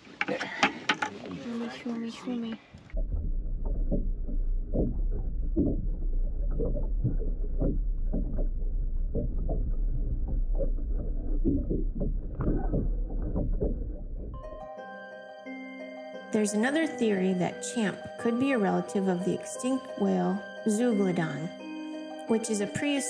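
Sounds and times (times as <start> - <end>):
water splashing and sloshing: 0.0 - 14.4
low rumble: 2.9 - 14.5.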